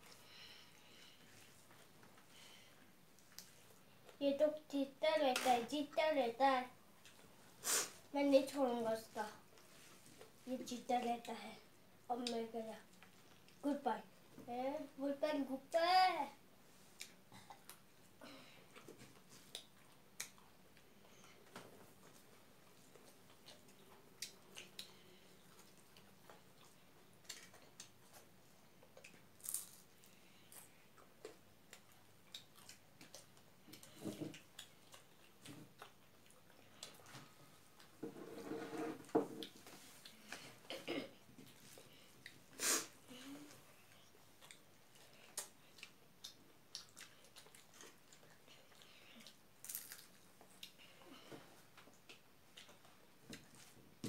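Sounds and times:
quiet chewing: 0.0s - 4.2s, 12.2s - 13.6s, 16.9s - 38.0s, 43.4s - 53.8s.

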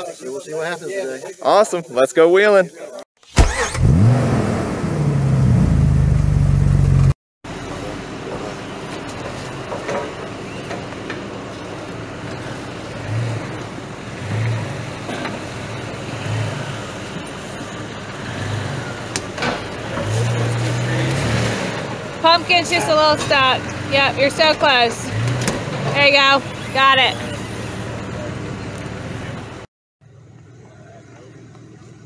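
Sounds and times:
car engine with throttle blips: 3.4s - 32.0s.

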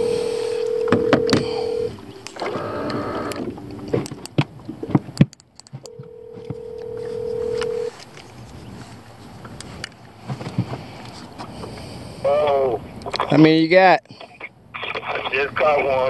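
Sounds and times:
phone ringback tone: 0.0s - 4.0s, 5.9s - 7.9s
phone handling clicks and knocks: 0.7s - 1.7s, 2.3s - 7.9s.

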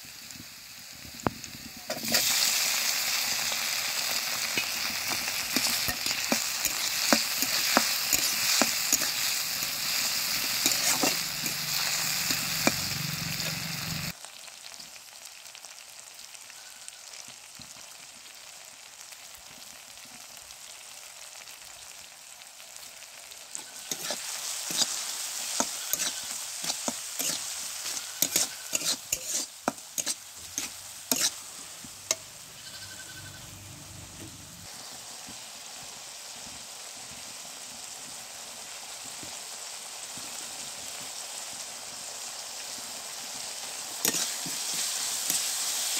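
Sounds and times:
onion sizzling in oil: 0.0s - 45.9s
spatula scraping pan: 1.9s - 14.1s, 23.6s - 33.6s, 44.0s - 45.9s.

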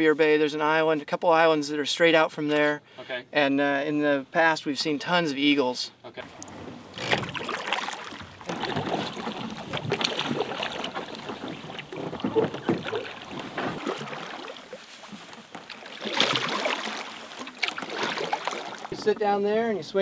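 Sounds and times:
water running off paddle: 6.3s - 19.4s
paddle splashing in water: 6.4s - 19.4s.

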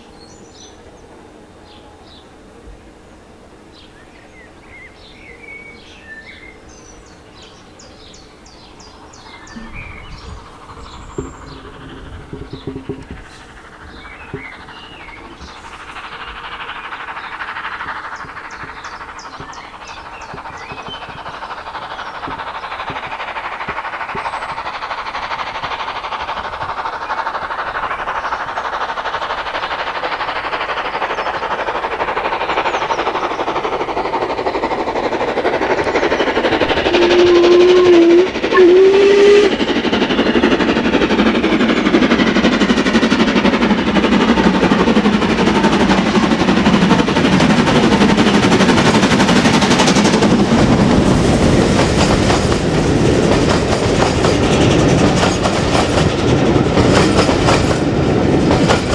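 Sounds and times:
steam locomotive exhaust: 0.0s - 58.9s
low steam whistle blasts: 36.8s - 39.8s.

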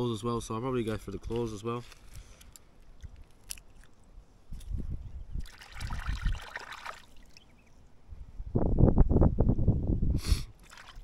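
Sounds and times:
shell cracking and squishing: 1.9s - 4.0s.

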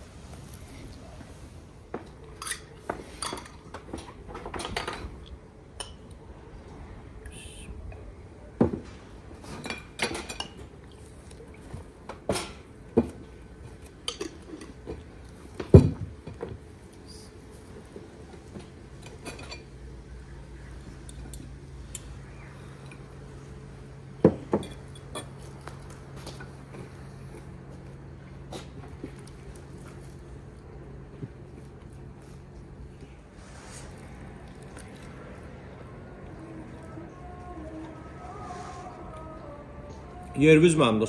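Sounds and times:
low steady hum: 0.0s - 41.0s
cutlery and plates clinking: 2.3s - 5.1s.

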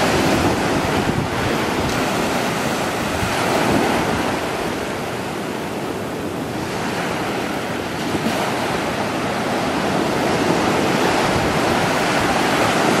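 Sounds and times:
ocean surf washing onto beach: 0.0s - 13.0s.

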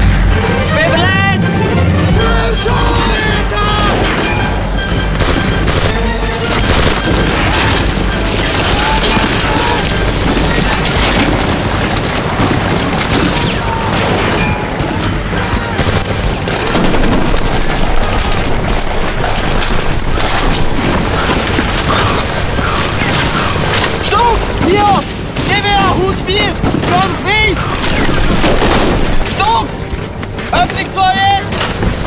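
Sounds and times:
background music: 0.0s - 32.0s
explosions booming: 1.4s - 30.6s
rifle gunfire: 5.2s - 24.0s.

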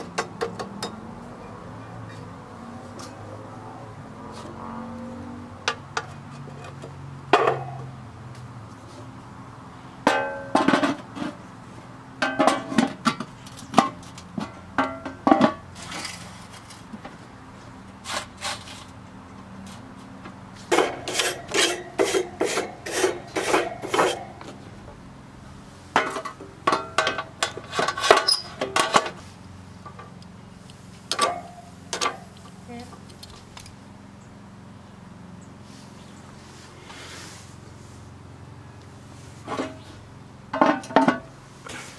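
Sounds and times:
metal tongs scraping grill grate: 15.7s - 16.9s, 18.0s - 19.0s, 20.6s - 24.6s, 26.0s - 29.2s.

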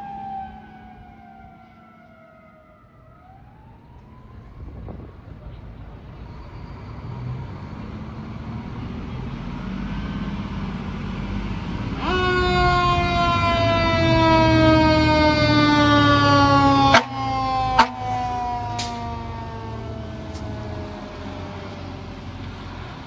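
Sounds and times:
truck engine rumble: 0.0s - 23.0s
air horn blast: 16.9s - 18.2s.

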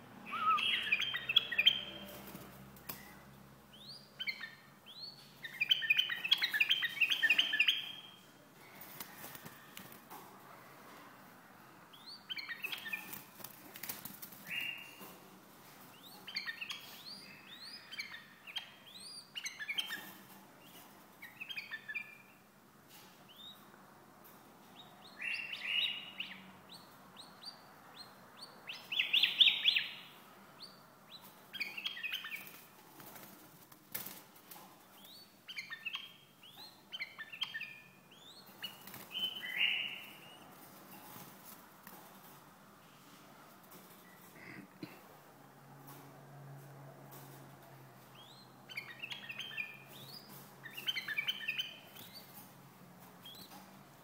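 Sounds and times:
bird singing chirping phrases: 0.2s - 2.1s, 3.0s - 8.2s, 24.8s - 32.5s, 35.0s - 40.5s, 48.1s - 52.4s
wings fluttering: 8.8s - 10.0s, 12.7s - 14.6s, 38.6s - 39.3s.

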